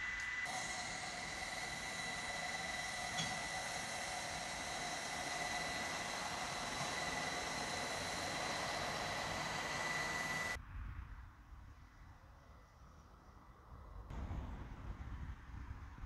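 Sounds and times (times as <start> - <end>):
steam hissing with high whine: 0.0 - 10.6.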